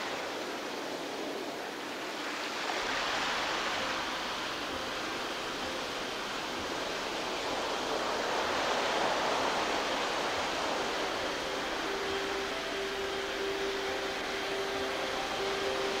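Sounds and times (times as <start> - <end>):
surf breaking on shore: 0.0 - 16.0.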